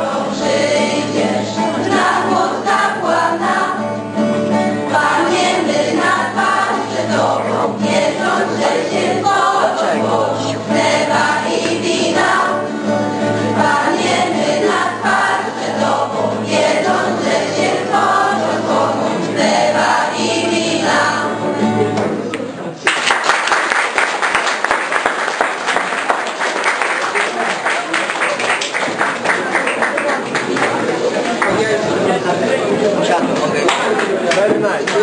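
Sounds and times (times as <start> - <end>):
children's choir singing: 0.0 - 22.2
acoustic guitar: 0.0 - 22.8
applause: 22.8 - 31.6, 33.6 - 35.0.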